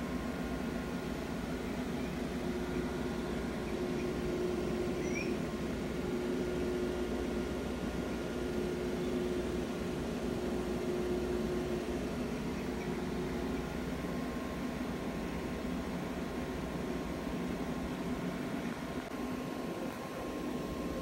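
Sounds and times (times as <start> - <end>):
mechanical hum with tones: 0.0 - 21.0
faint high chirp: 5.0 - 5.4.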